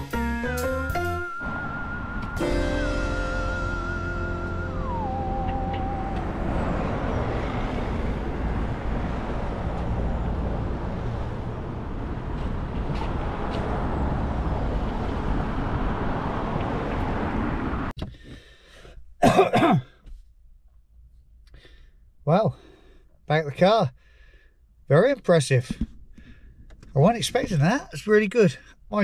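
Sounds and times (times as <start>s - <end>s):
road traffic: 0.0s - 19.8s
man breathing loudly: 18.1s - 19.0s, 21.5s - 23.2s, 24.0s - 24.7s.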